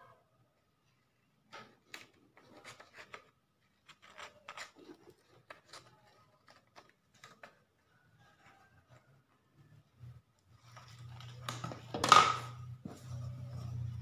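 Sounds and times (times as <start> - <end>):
paper rustling: 0.9 - 9.0
scissors snipping paper: 1.9 - 7.7.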